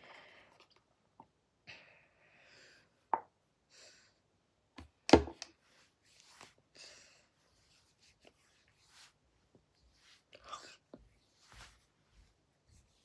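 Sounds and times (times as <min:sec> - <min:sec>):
soft rustles of handling: 0:05.5 - 0:13.0.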